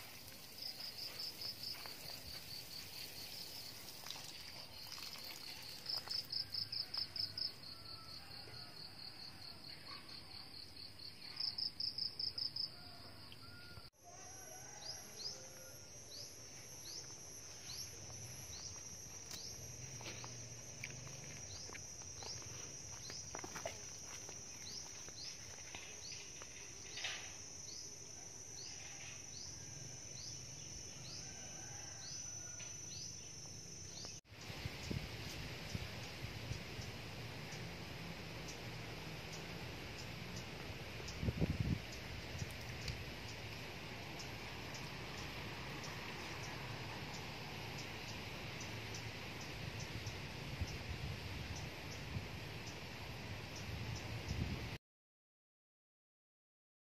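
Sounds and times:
short insect chirps: 0.0 - 7.8, 14.4 - 37.7
insects trilling: 0.0 - 54.4.

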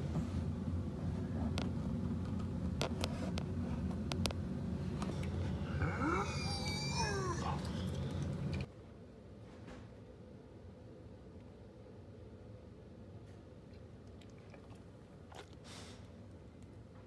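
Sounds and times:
dog whining yawn: 5.6 - 8.7.

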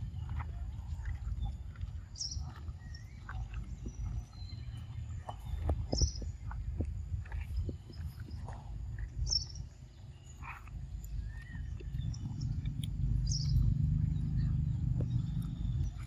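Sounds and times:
monkey chewing wet smacking: 0.0 - 16.0
steady low rumble: 0.0 - 16.0
high bird chirps: 11.1 - 16.0.

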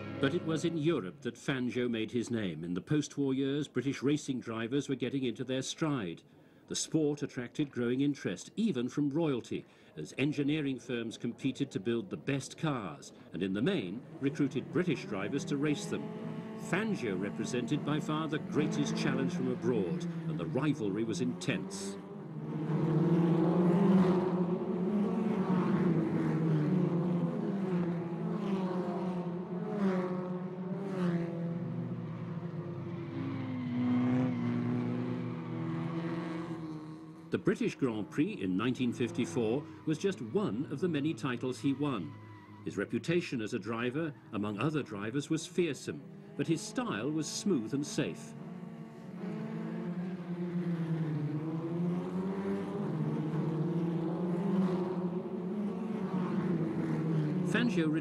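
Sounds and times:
racing cars passing by: 0.0 - 1.2, 13.2 - 58.0.

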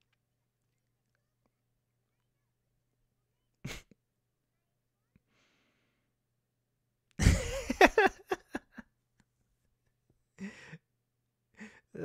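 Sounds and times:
man laughing: 7.2 - 8.8.

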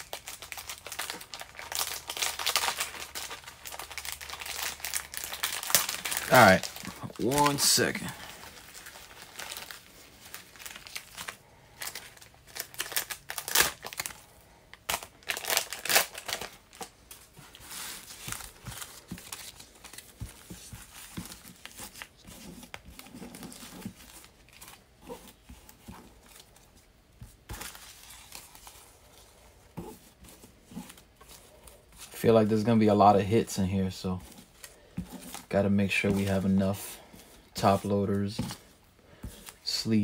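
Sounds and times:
plastic packaging crinkling: 0.0 - 40.0.

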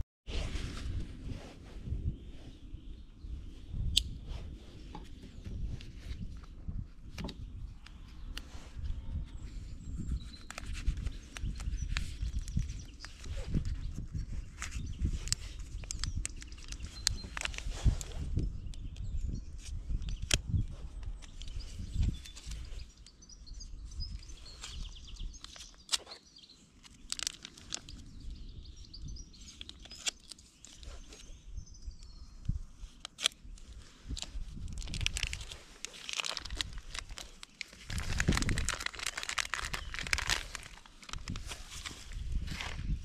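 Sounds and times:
plastic crinkling and tearing: 10.3 - 18.2, 26.8 - 28.1, 29.4 - 31.3, 33.0 - 43.0
knife cutting plastic package: 34.8 - 41.9.

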